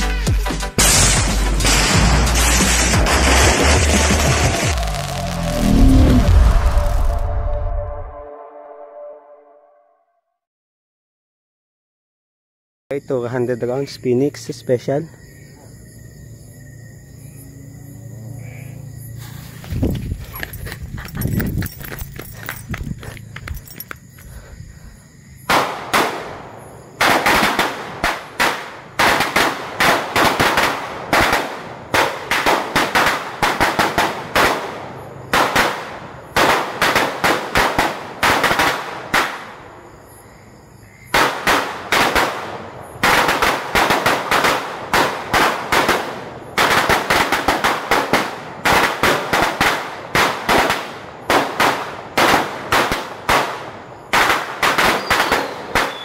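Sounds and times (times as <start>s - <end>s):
firecrackers banging rapidly: 0.8s - 5.4s, 25.5s - 39.5s, 41.1s - 56.0s.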